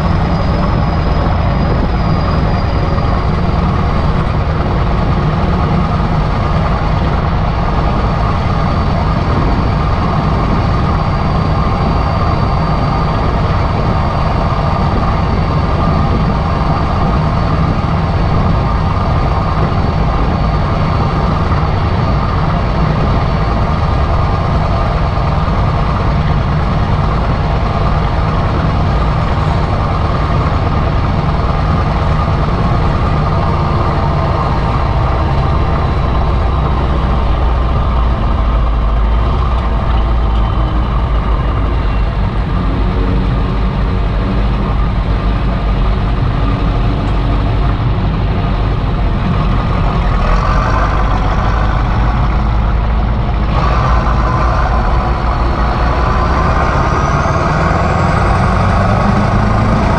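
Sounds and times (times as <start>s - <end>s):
turbocharger whistle: 0.0s - 4.4s
diesel tractor engine running: 0.0s - 59.9s.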